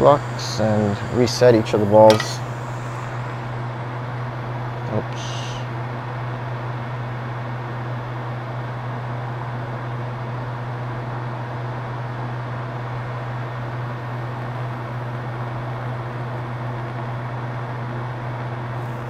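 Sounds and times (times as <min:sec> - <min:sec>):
hot air station blowing: 0:00.0 - 0:06.4, 0:18.7 - 0:19.0.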